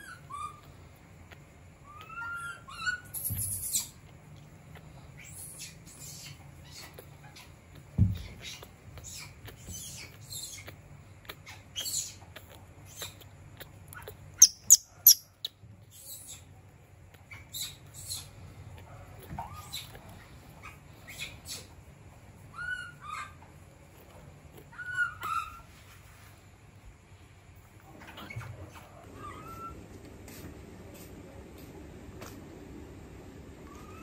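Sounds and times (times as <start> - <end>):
baby monkey squeaking: 0.0 - 4.1, 4.8 - 18.5, 19.4 - 21.8, 22.5 - 23.4, 24.6 - 25.7.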